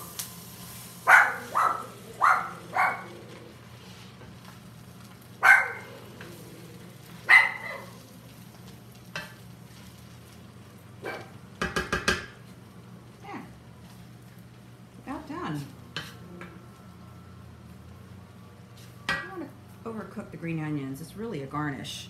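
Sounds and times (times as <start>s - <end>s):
rice sizzling in a pan: 0.0s - 21.1s
dog barking: 1.1s - 3.1s, 5.4s - 6.0s, 7.2s - 8.0s, 11.0s - 11.3s.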